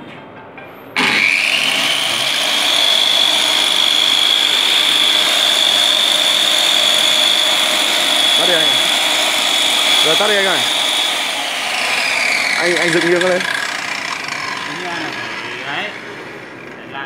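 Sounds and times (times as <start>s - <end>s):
electric circular saw whining: 1.0s - 17.0s.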